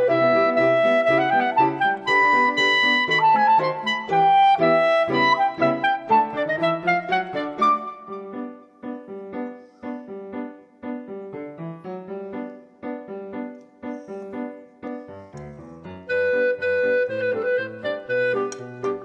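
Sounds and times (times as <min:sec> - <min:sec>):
bouncy keyboard tune: 0:00.0 - 0:08.8.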